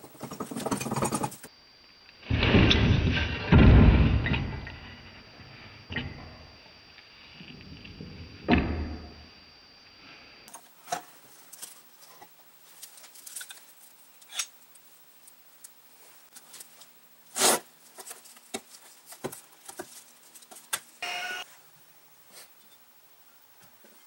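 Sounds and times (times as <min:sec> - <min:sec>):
metal parts clicking and scraping: 0:00.0 - 0:01.5, 0:12.8 - 0:14.5.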